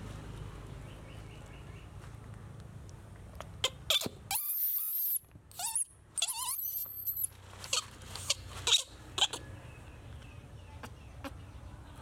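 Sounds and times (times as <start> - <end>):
baby monkey squeaking and grunting: 3.4 - 9.5.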